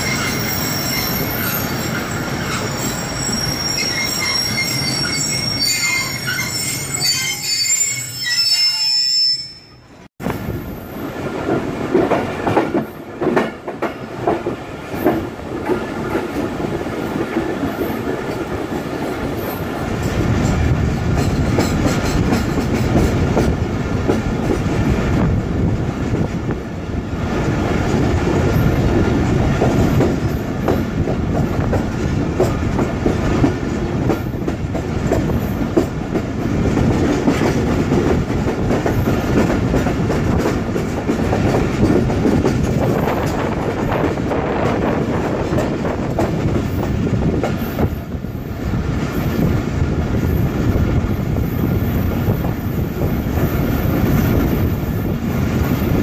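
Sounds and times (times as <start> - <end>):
train wheels clattering over rail joints: 11.5 - 24.9, 27.5 - 48.2.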